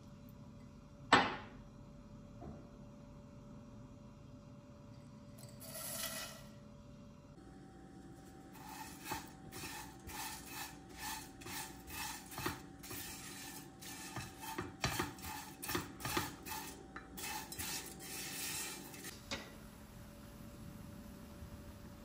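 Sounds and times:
utensil scraping in a pot: 5.5 - 6.6, 8.0 - 19.1.

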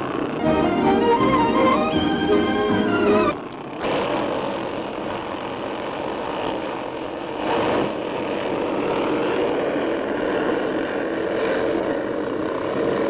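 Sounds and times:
racing car engines droning: 0.0 - 3.8.

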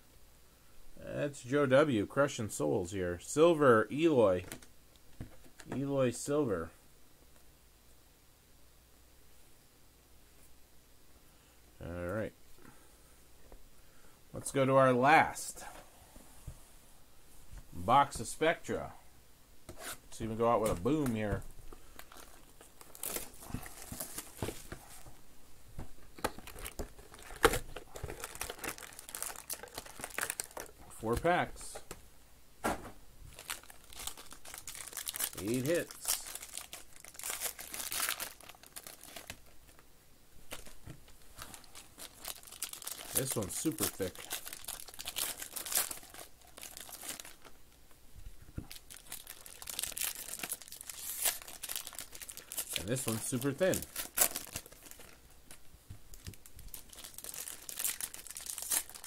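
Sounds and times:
plastic wrap crinkling and tearing: 20.2 - 25.1, 26.2 - 31.8, 33.3 - 39.8, 40.5 - 47.7, 48.6 - 59.0.

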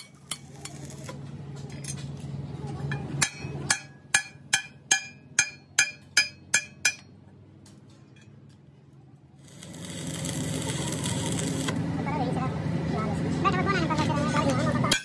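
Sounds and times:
hammer striking steel: 3.2 - 7.2.

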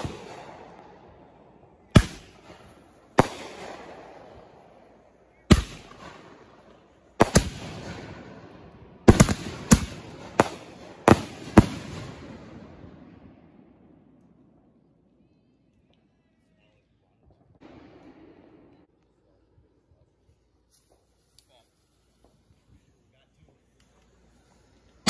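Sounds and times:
fireworks bangs with echo: 0.0 - 14.0, 17.6 - 18.9.

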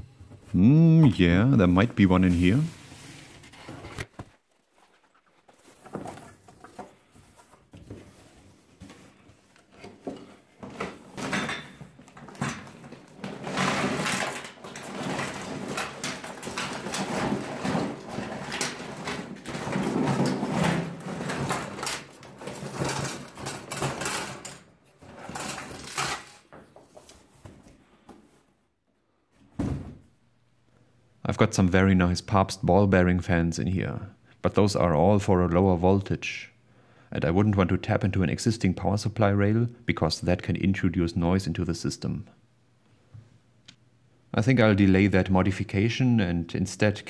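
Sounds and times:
plastic fans clattering on table: 9.9 - 26.7.

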